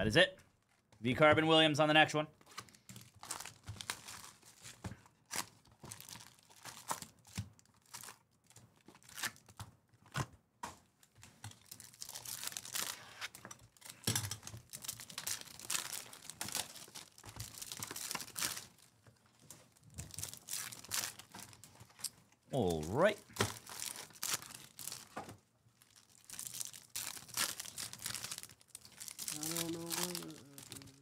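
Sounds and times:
foil wrappers crinkling and tearing: 2.5 - 9.7, 11.3 - 31.0.

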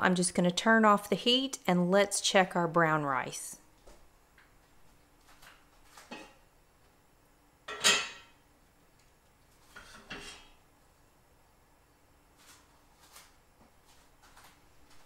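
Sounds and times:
pans knocking and scraping: 7.7 - 8.4.

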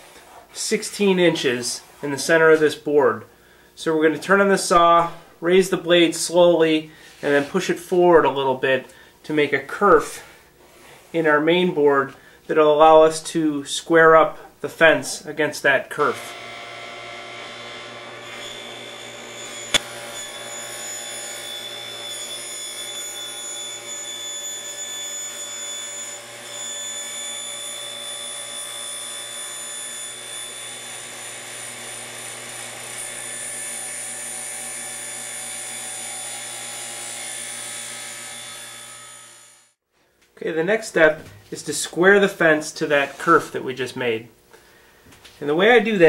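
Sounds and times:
table saw cutting plywood: 16.0 - 39.8.

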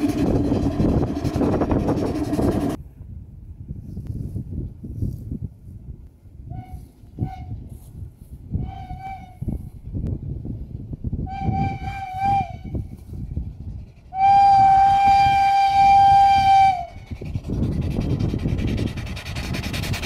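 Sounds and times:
motorcycle passing with rushing hiss: 0.0 - 2.8
steam engine chuffing: 0.0 - 2.8, 11.6 - 20.0
steam whistle blowing: 8.6 - 9.5, 11.3 - 12.8, 14.1 - 17.1.

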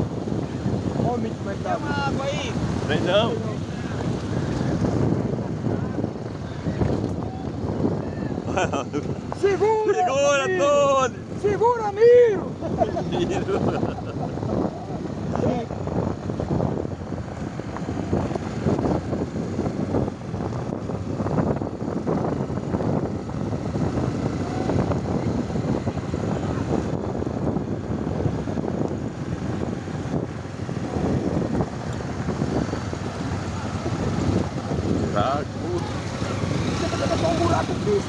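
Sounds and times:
tyre noise on dirt road: 0.0 - 38.0
wind buffeting microphone: 0.0 - 38.0
motorcycle engine running: 14.0 - 38.0.

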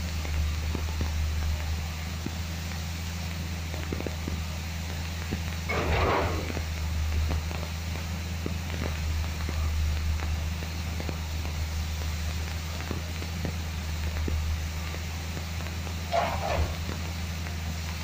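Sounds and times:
heavy machinery engine running: 0.0 - 18.0
metal scrape: 5.7 - 6.6, 16.1 - 16.9.

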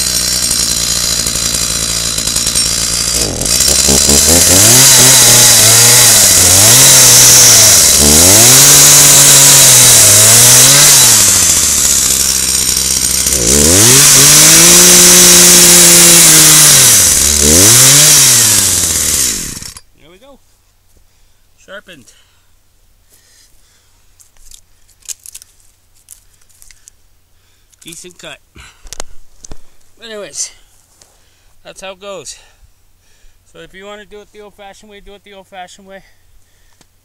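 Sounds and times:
chainsaw idling and revving: 0.0 - 19.9.

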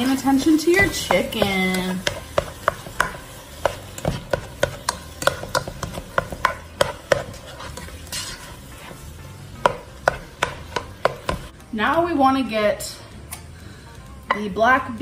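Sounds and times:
utensil scraping a pot: 0.0 - 11.5.

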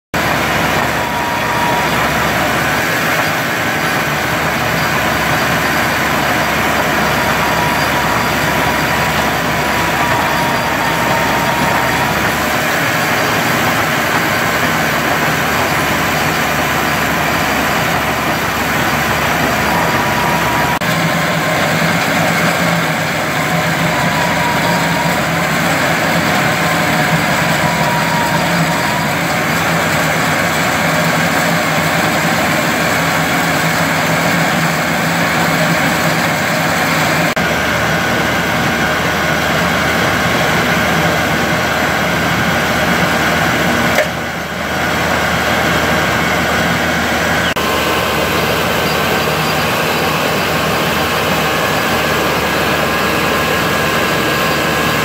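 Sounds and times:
diesel engine running hard: 0.1 - 55.0
asphalt milling grinding with whine: 0.2 - 55.0.

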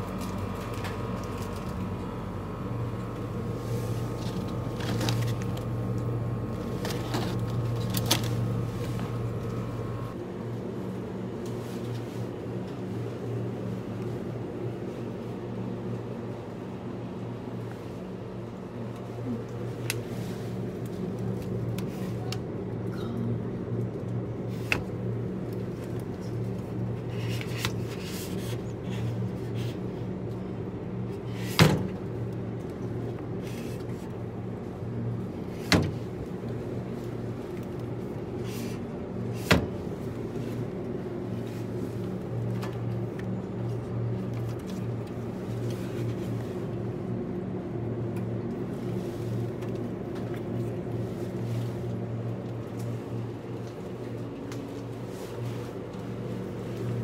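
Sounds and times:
low machine hum: 0.0 - 57.0.

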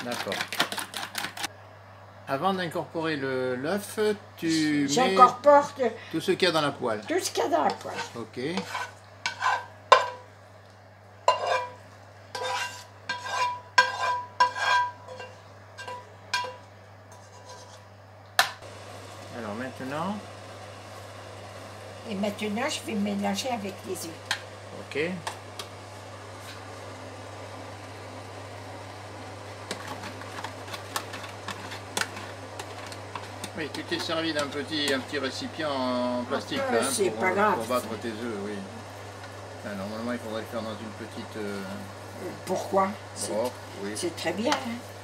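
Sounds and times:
steady low hum: 1.4 - 45.0
fork scraping metal frying pan: 7.6 - 10.2, 11.3 - 17.9.

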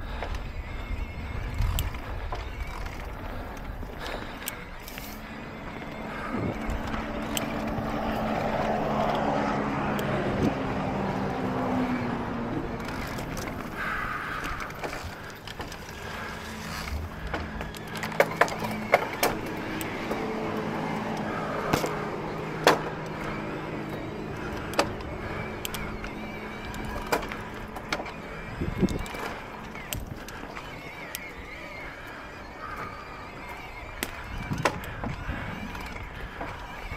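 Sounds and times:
electric bike motor whine: 0.0 - 36.9
knocks and rattles from bumps: 12.6 - 30.6.

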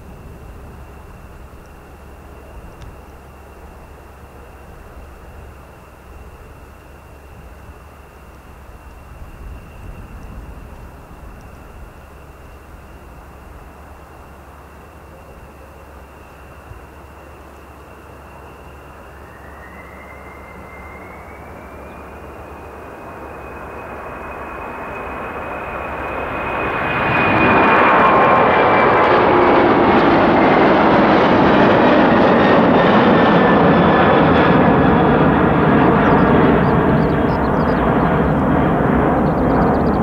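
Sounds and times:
thin engine whine: 0.0 - 40.0
jet engines spooling up: 17.9 - 40.0.

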